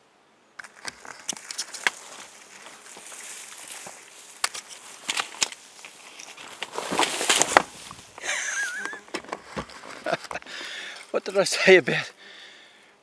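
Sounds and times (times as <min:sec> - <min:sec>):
sticks snapping: 0:00.6 - 0:07.9
crash of brush: 0:00.6 - 0:11.1
footsteps crunching through leaves: 0:00.6 - 0:11.2.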